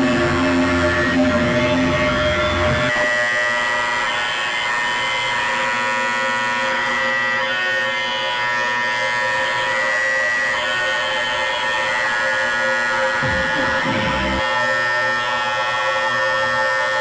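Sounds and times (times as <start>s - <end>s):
drone of held tones: 0.0s - 3.9s, 10.6s - 14.8s
low wavering sound: 13.2s - 14.4s.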